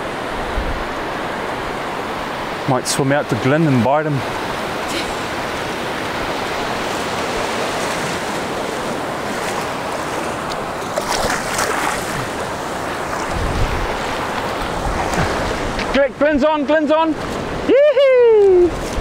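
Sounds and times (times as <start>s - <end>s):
wind gust on microphone: 0.0s - 2.7s, 11.2s - 19.0s
waves breaking on beach: 0.0s - 19.0s
water splashing: 2.8s - 19.0s.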